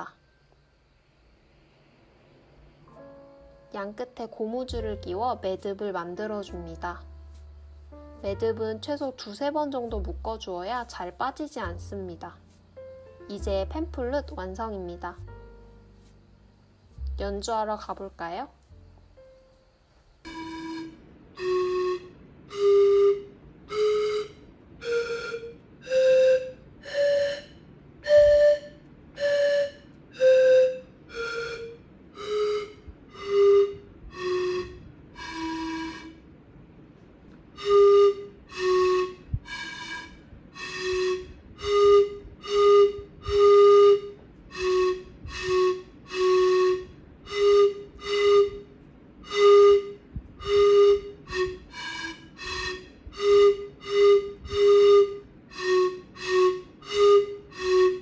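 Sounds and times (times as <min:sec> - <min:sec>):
breathy pan flute notes: 0:20.3 - 0:36.3, 0:37.6 - 0:58.0.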